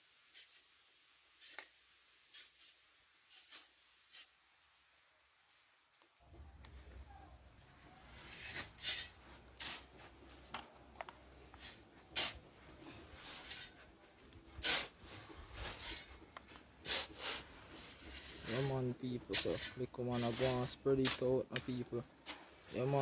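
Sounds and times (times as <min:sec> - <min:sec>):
shovel scraping into gravel: 0:00.3 - 0:04.4, 0:08.0 - 0:10.5, 0:11.5 - 0:13.9, 0:14.5 - 0:16.2, 0:16.8 - 0:23.0.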